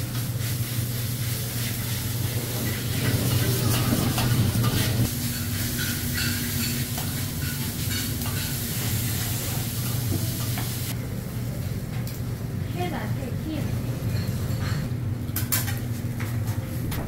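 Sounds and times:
rice sizzling: 0.0s - 11.0s.

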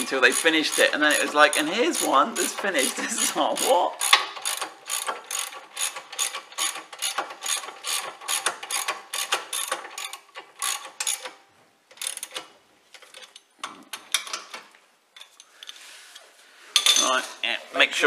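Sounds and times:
hand ratchet clicking: 0.0s - 13.4s.

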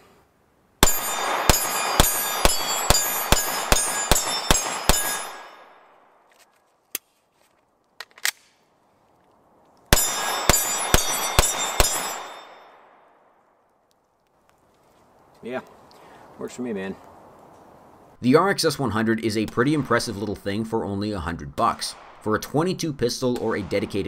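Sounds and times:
pistol shots: 0.8s - 5.7s, 9.9s - 13.1s.

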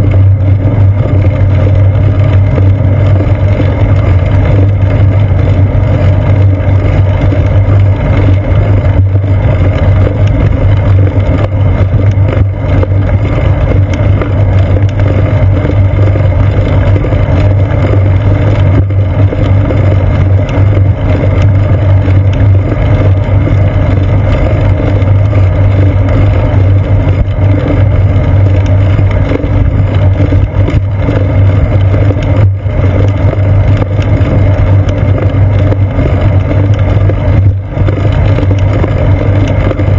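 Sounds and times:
wind and road rumble: 0.0s - 39.9s.

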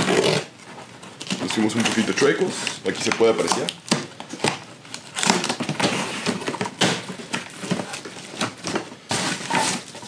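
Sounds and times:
cardboard scraping and tearing: 0.0s - 10.0s
knife slitting cardboard box: 5.2s - 10.0s.

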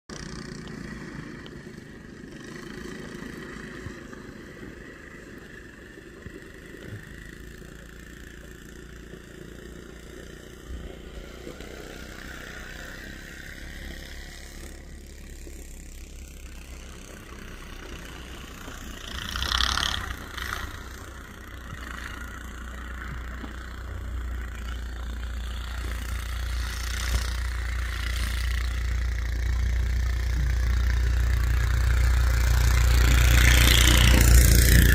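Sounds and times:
small engine running: 0.1s - 34.9s.

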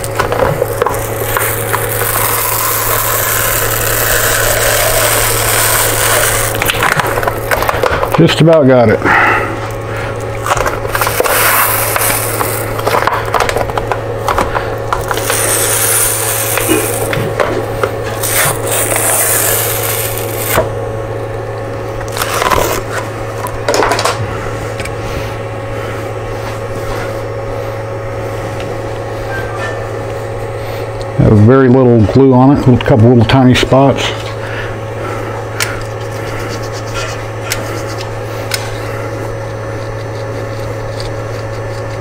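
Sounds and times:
magnetic sheet peeling off: 0.0s - 8.4s, 10.4s - 14.0s, 14.6s - 20.7s
steady low hum: 0.0s - 42.0s.

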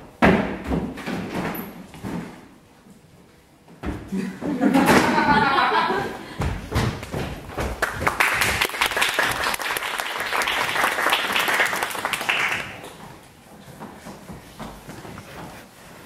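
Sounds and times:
audience applauding: 7.8s - 12.8s.

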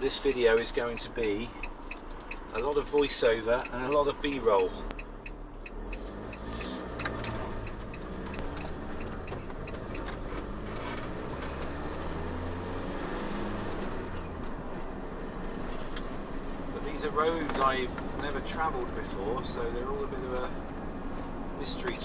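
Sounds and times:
diesel engine hum: 0.0s - 22.0s
tyre and road noise: 0.0s - 22.0s.

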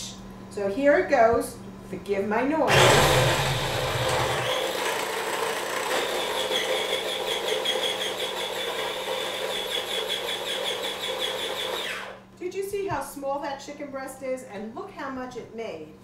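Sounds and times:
electric food chopper running: 2.7s - 12.2s.

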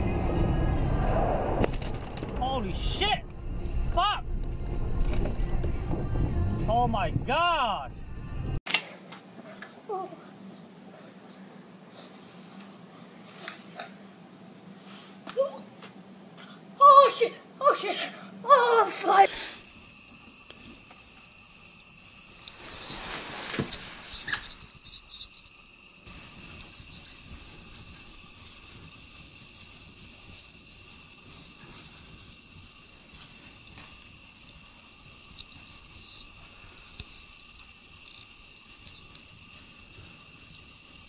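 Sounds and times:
steady hiss: 18.6s - 41.0s
cat scratching packed snow: 22.5s - 24.4s.

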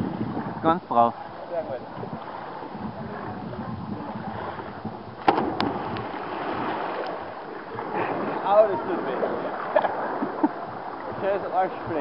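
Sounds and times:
water noise: 0.0s - 12.0s
body slapping water: 5.2s - 7.3s.

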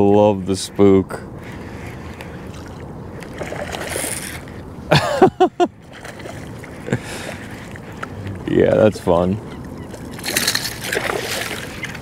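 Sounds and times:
water lapping at kayak: 0.0s - 12.0s
fish splashing at surface: 10.2s - 12.0s.

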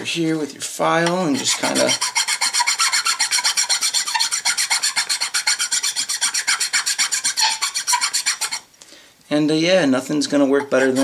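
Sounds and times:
file rasping on wood: 1.0s - 8.7s, 10.6s - 11.0s.

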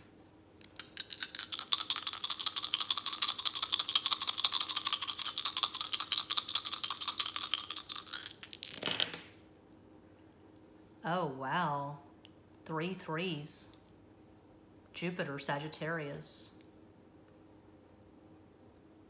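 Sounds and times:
deck of cards shuffling: 0.0s - 9.3s.

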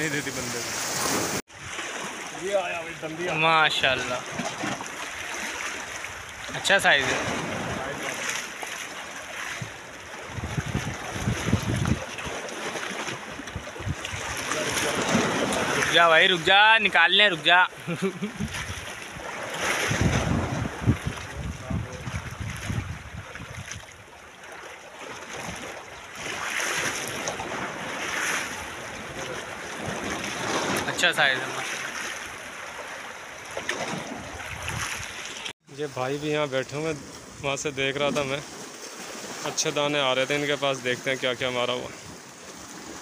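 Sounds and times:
sea washing against rocks: 0.0s - 17.5s, 18.4s - 23.6s, 24.4s - 35.5s
wind buffeting microphone: 9.5s - 12.3s, 13.4s - 15.9s, 18.3s - 24.0s, 34.1s - 35.2s.

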